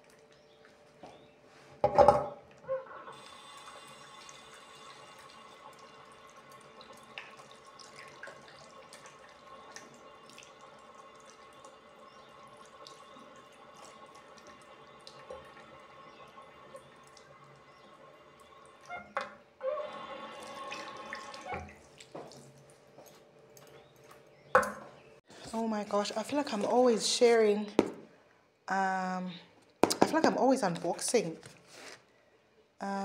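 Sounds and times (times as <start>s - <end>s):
tap water running into sink: 3.1s - 22.6s
hands washing with splashes: 20.4s - 24.3s.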